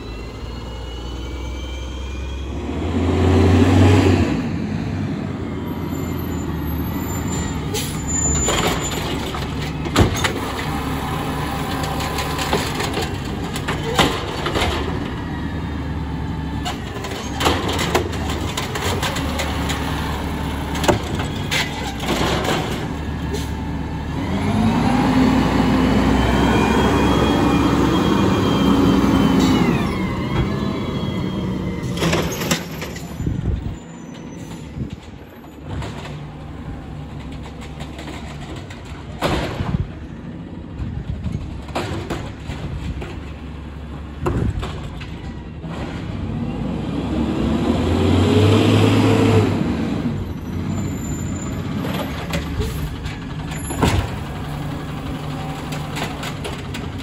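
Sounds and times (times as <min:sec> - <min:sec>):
garbage truck engine revving: 0:00.0 - 0:32.8, 0:45.6 - 0:57.0
air brakes: 0:07.3 - 0:08.8, 0:23.3 - 0:23.6, 0:33.8 - 0:35.1.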